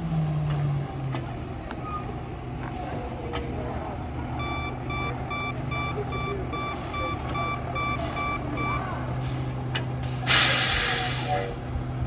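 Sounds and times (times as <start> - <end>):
diesel engine running: 0.0 - 12.0
truck backup alarm beeping: 1.0 - 2.4, 4.3 - 9.5
air brakes hissing: 9.1 - 11.6.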